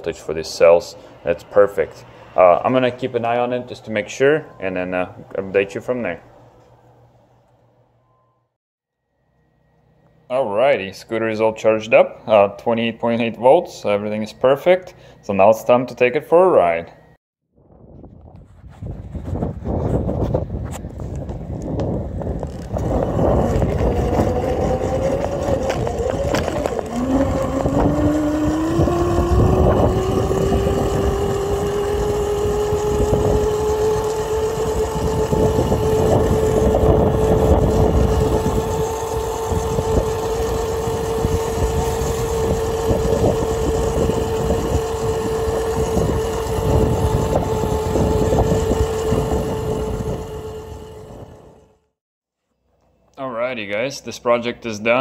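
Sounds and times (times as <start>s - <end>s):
electric scooter motor whine: 8.0s - 17.2s, 19.9s - 52.0s
wind noise: 17.6s - 51.6s
wheel rumble: 19.0s - 51.8s.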